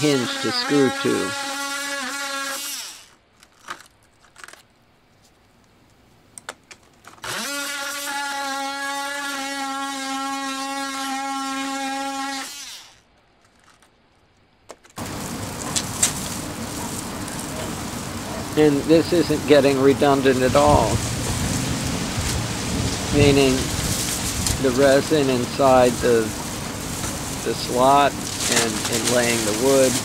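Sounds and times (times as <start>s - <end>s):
multi-tool cutting panel: 0.0s - 3.1s
dense hiss: 15.0s - 30.0s.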